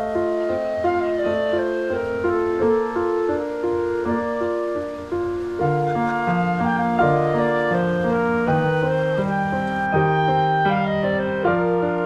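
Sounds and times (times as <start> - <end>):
keyboard melody over chords: 0.0 - 12.0.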